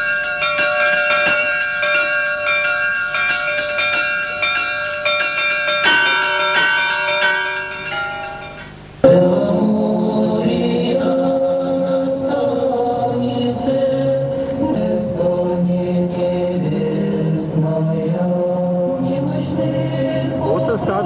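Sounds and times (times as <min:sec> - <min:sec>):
church bells ringing: 0:00.0 - 0:13.3
chanting: 0:09.0 - 0:21.0.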